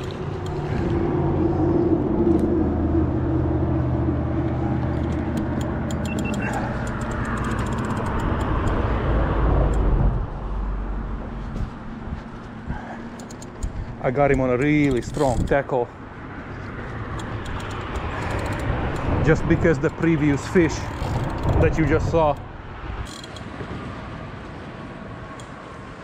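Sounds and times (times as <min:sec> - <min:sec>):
passing vehicle engine humming: 0:00.0 - 0:25.9
light clicks: 0:17.1 - 0:19.2.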